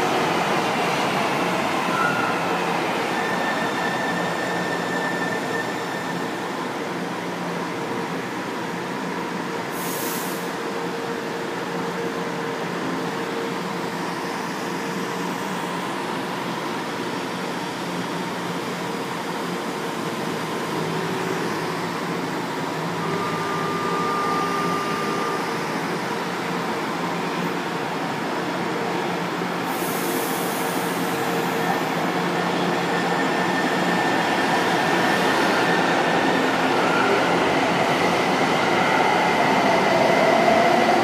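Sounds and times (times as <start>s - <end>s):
short air hiss: 9.7s - 10.5s, 29.7s - 31.0s.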